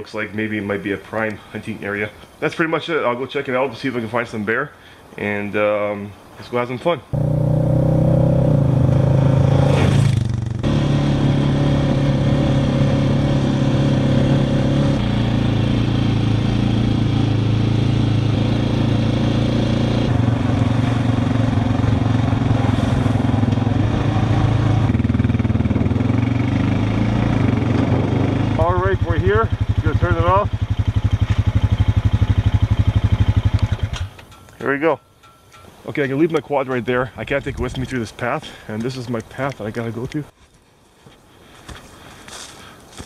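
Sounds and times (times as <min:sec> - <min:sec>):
quad passing by: 0:07.1 - 0:34.2
quad engine running: 0:07.2 - 0:34.1.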